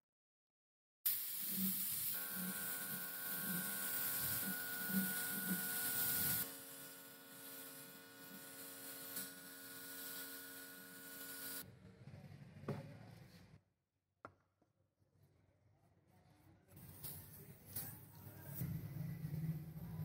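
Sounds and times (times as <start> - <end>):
spray paint hissing: 1.1 - 11.6.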